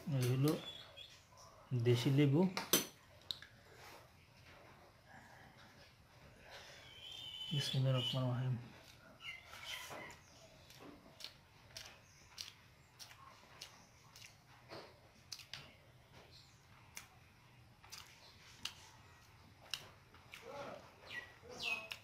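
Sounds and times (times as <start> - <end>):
fingers mixing rice on plate: 8.2 - 15.9, 17.8 - 22.0.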